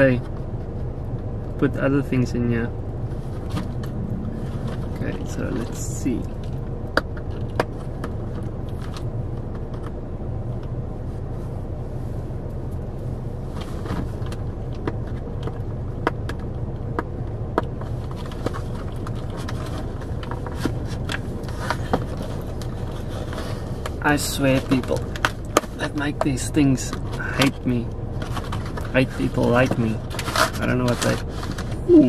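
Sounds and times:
car cabin hum: 0:00.0 - 0:18.0, 0:31.7 - 0:32.0.

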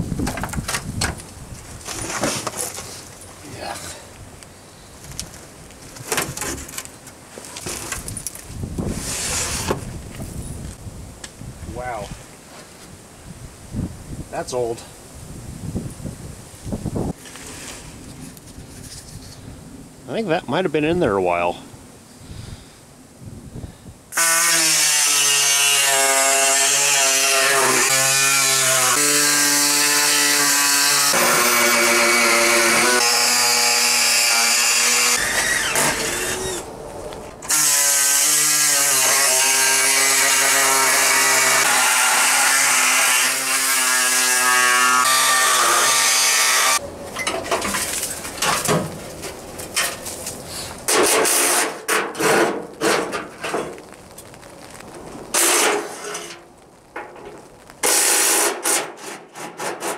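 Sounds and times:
power tool running: 0:27.1 - 0:36.7.

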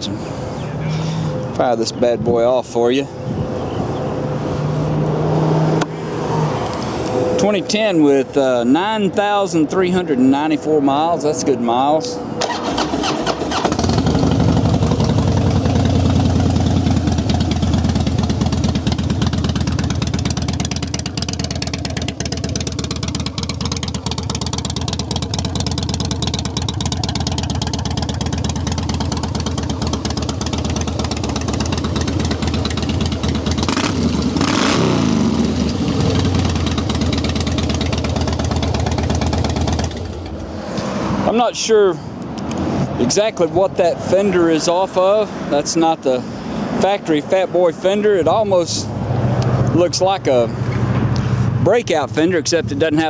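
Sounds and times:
motorcycle engine starting and idling: 0:12.4 - 0:40.6.

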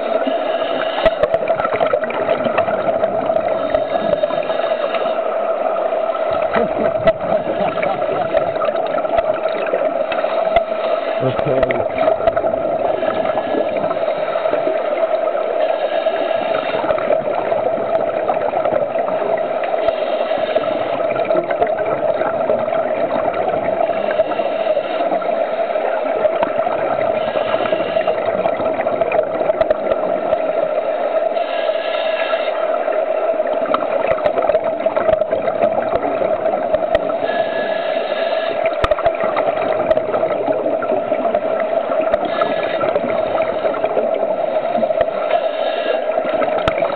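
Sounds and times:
underwater hum: 0:00.0 - 0:46.9
bubbles from divers exhaling: 0:06.3 - 0:10.0.

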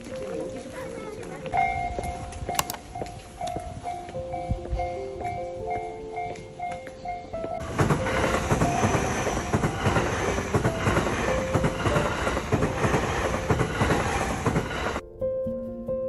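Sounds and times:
electric train passing: 0:01.5 - 0:15.0
wheels clattering over rail joints: 0:07.2 - 0:15.0.

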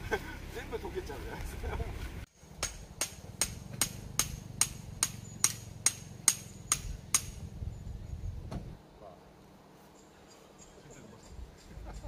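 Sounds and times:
sharp metallic taps: 0:02.6 - 0:07.4.

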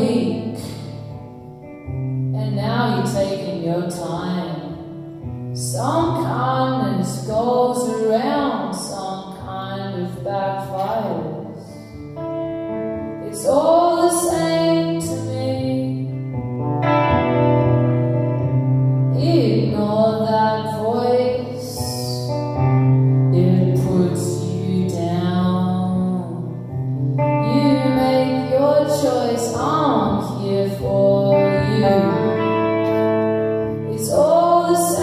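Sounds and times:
woman singing: 0:00.0 - 0:01.2, 0:02.3 - 0:05.0, 0:05.6 - 0:12.0, 0:13.2 - 0:16.3, 0:19.1 - 0:22.6, 0:23.2 - 0:35.0
strummed electric guitar: 0:00.0 - 0:35.0.

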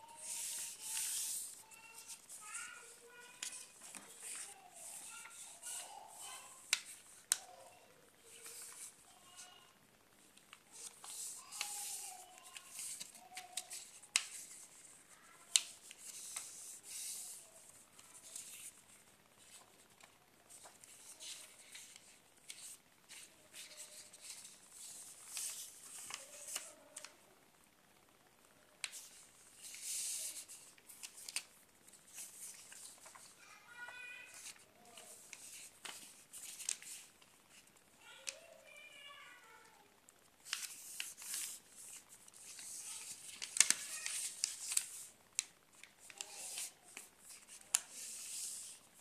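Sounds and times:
paper rustling: 0:00.0 - 0:09.5, 0:10.7 - 0:18.8, 0:19.4 - 0:27.1, 0:28.8 - 0:38.4, 0:40.4 - 0:48.8
paper snapping: 0:42.6 - 0:44.8.

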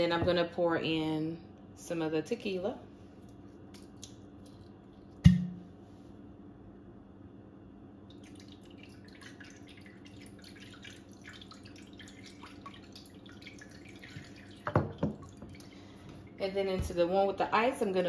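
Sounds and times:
liquid splashing and trickling: 0:08.1 - 0:16.4.

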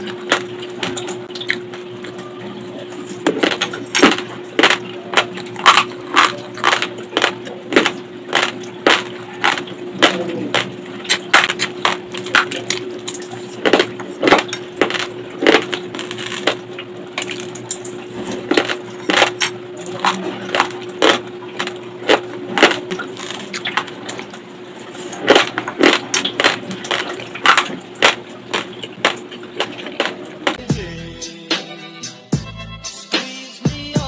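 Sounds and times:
chewing crunchy raw rice: 0:00.0 - 0:02.2, 0:02.9 - 0:30.6.

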